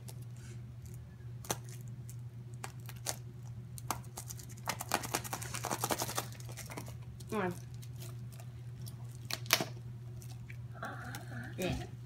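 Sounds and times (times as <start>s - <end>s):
cardboard tearing: 4.1s - 6.9s.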